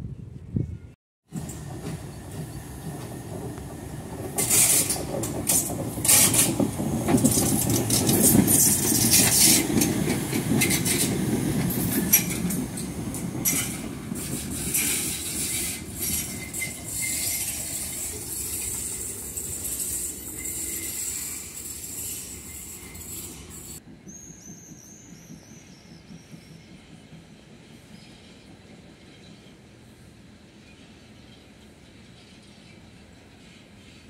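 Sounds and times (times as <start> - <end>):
wheels clattering over rails: 1.3 - 21.0
steam locomotive rumble: 1.3 - 32.2.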